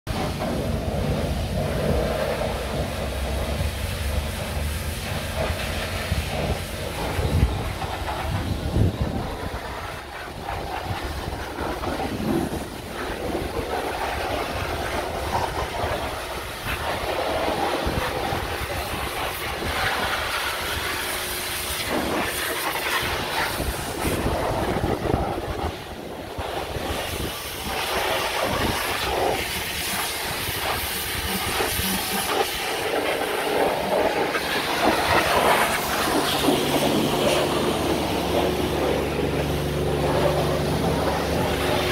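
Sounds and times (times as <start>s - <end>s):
pressure washer spraying metal: 0.1s - 41.9s
steady low hum: 21.4s - 41.9s.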